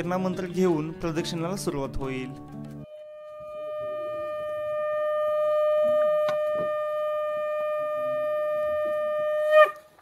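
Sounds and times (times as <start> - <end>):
conch shell blown: 2.8 - 10.0.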